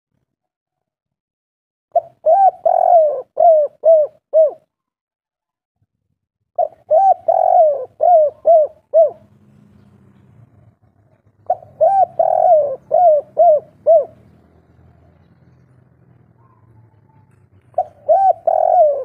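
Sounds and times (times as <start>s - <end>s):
dove cooing: 2.0s - 4.7s, 6.6s - 9.4s, 11.1s - 14.4s, 16.3s - 19.0s.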